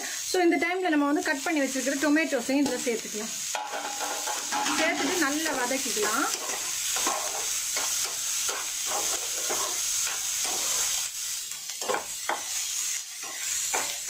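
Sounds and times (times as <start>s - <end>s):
vegetables sizzling in oil: 0.0s - 14.0s
spatula scraping a pan: 3.5s - 14.0s.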